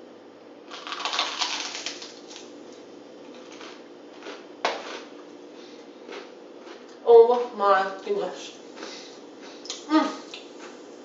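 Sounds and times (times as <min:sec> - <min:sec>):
crunchy bread being chewed: 0:00.7 - 0:02.6, 0:03.2 - 0:07.0, 0:08.7 - 0:11.0.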